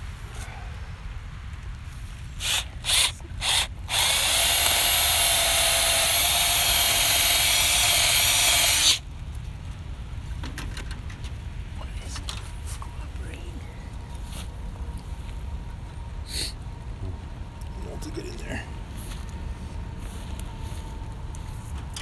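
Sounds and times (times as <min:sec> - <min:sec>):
cordless drill spinning: 0:02.3 - 0:09.0.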